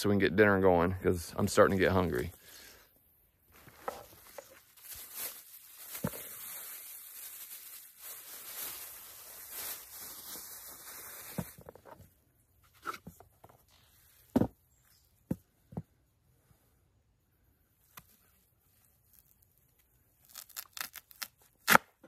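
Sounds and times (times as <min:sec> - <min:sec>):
plastic bag crinkling: 0:03.9 - 0:11.6.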